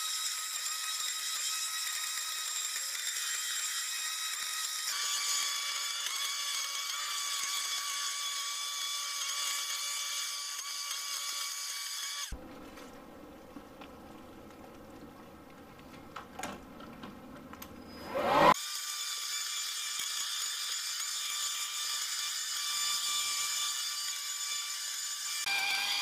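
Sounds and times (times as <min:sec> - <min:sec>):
leaf vacuum motor whining: 0:17.8 - 0:18.6.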